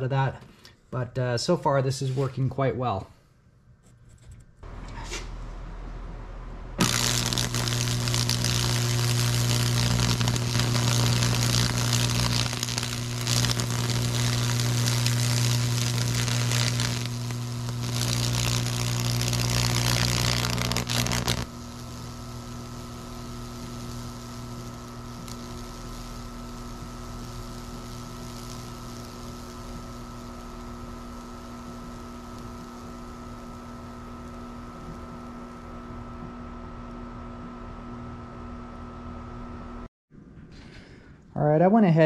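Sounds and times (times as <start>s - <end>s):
loud electrical hum: 4.6s - 39.9s
electrical arcs crackling: 6.8s - 35.6s.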